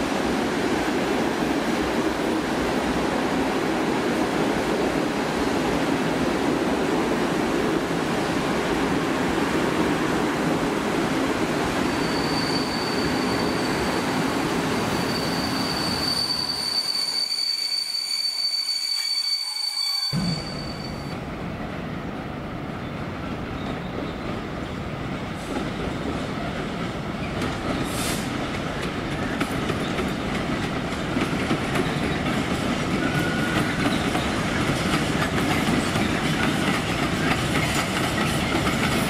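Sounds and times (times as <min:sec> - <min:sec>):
train wheels rumbling on rail: 0:00.0 - 0:39.0
high wheel squeal: 0:11.8 - 0:21.2.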